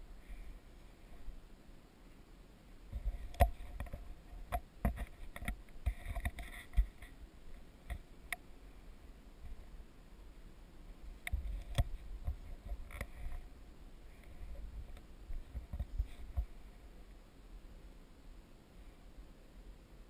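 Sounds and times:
small clicks and knocks: 2.9 - 7.2, 7.8 - 8.4, 11.2 - 13.4, 14.2 - 16.6.

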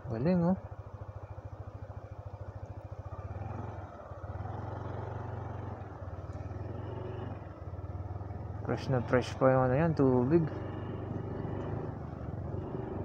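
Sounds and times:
scooter engine revving: 3.2 - 8.3, 10.4 - 13.0.

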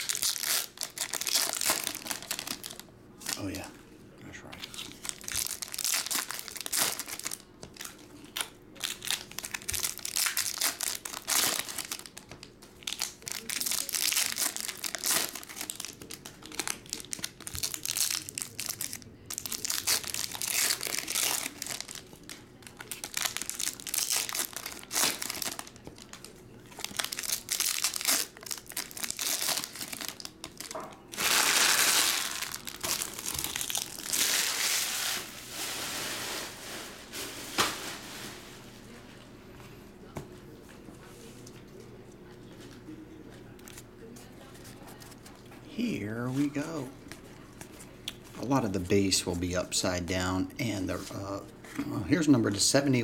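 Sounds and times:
foil wrappers crinkling and tearing: 0.0 - 3.7, 4.6 - 38.9.

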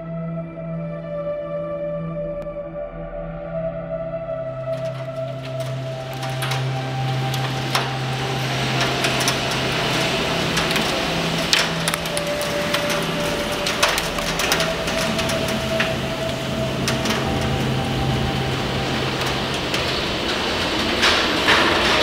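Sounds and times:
heavy rain rushing: 4.6 - 22.0
hailstones striking: 4.7 - 22.0.

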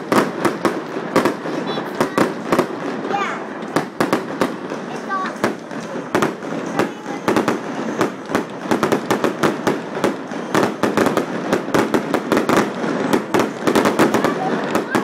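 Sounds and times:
fireworks banging and crackling: 0.0 - 15.0.

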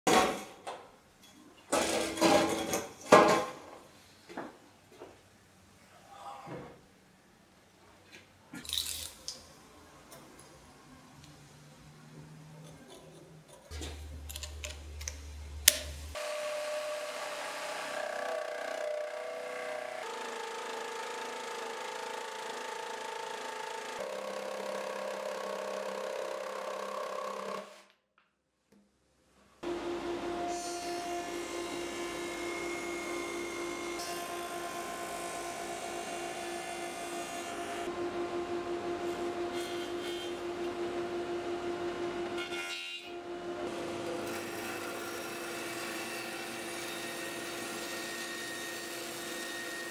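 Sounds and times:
jigsaw cutting wood: 16.2 - 27.8, 29.6 - 42.4, 43.2 - 49.9.

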